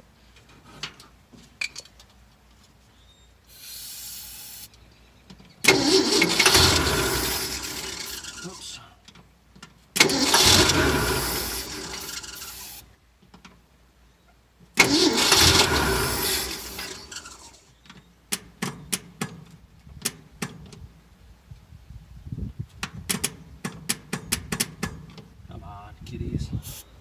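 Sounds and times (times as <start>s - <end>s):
starter motor cranking engine: 5.6s - 8.8s, 10.0s - 12.8s, 14.8s - 17.7s.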